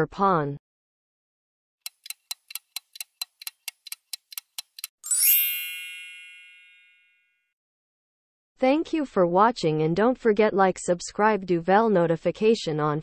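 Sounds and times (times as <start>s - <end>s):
clock ticking: 1.8s - 4.9s
bright bell ding: 5.0s - 7.3s.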